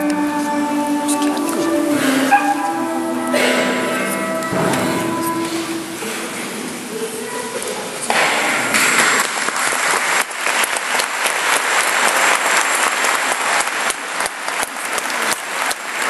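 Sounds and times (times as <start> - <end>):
music: 0.0 - 6.5
audience applause: 8.3 - 16.0.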